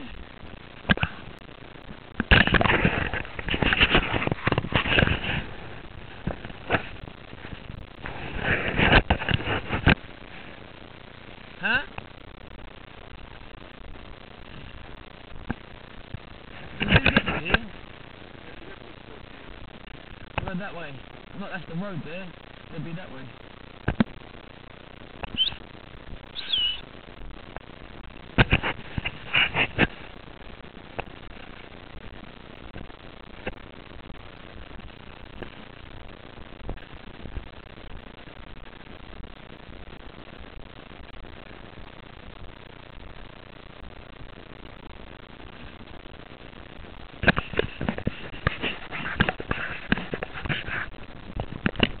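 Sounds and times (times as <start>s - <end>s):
steady hiss: 0.0s - 52.0s
high whistled calls: 25.3s - 25.6s, 26.3s - 26.8s.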